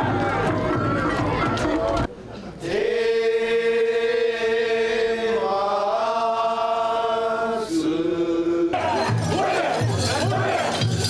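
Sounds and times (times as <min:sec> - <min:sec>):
chanting in long held notes: 0:02.6 - 0:11.0.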